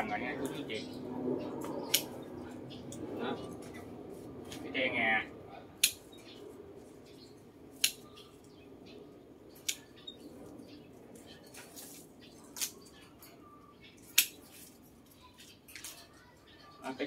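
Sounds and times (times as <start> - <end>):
low background hum: 0.0 - 17.0
pruning shears snipping: 1.6 - 2.2, 5.8 - 6.2, 7.7 - 8.2, 9.6 - 10.0, 11.1 - 13.0, 14.0 - 14.8.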